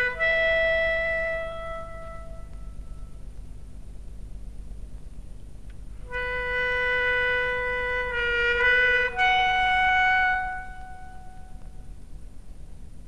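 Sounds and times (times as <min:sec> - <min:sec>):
solo clarinet-like woodwind notes: 0:00.0 - 0:03.3, 0:06.0 - 0:12.0.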